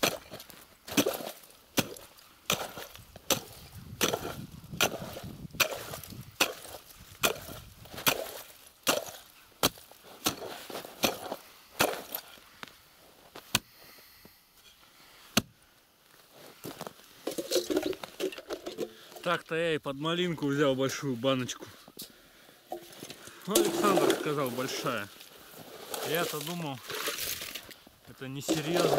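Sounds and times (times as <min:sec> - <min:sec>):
ice chisel striking ice: 0:00.0 - 0:12.3, 0:23.5 - 0:24.7, 0:28.4 - 0:28.9.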